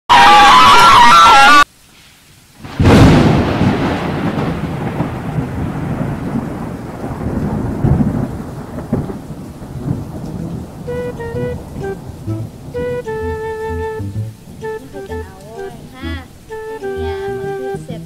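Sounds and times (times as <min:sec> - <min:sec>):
steady rain: 0:00.1 - 0:18.0
thunderclap with rumbling: 0:02.6 - 0:14.0.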